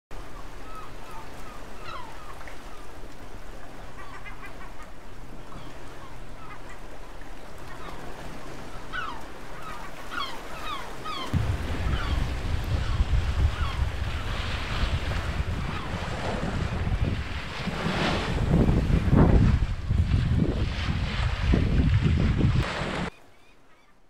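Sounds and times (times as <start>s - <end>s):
rushing water: 0.1s - 23.2s
water birds calling: 0.2s - 20.0s, 20.7s - 24.0s
wind buffeting microphone: 11.0s - 23.1s.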